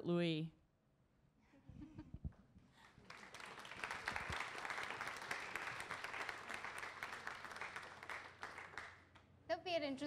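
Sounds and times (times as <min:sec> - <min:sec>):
audience applauding: 0:02.8 - 0:09.1.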